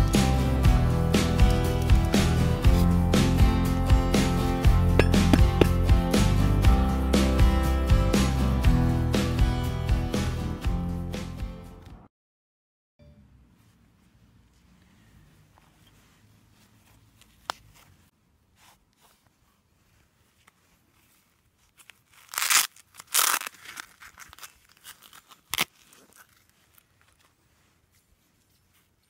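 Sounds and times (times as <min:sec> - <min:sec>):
leather scraping and rubbing: 0:13.6 - 0:29.0.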